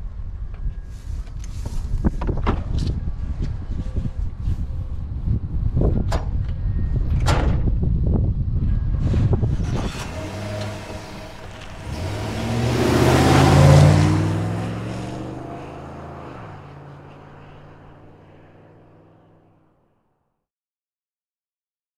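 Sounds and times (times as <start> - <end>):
truck engine revving: 9.4 - 19.6.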